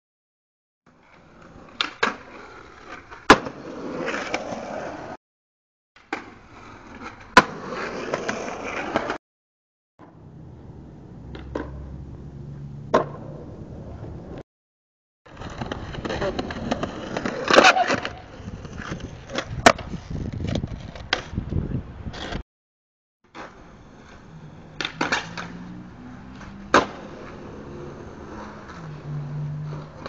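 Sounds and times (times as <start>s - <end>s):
skateboard wheels rolling on concrete: 0.9s - 5.2s, 6.0s - 9.2s, 10.0s - 14.4s, 15.3s - 22.4s, 23.2s - 30.0s
skateboard clacking on ground: 11.2s - 11.9s, 15.3s - 21.6s, 23.3s - 25.6s.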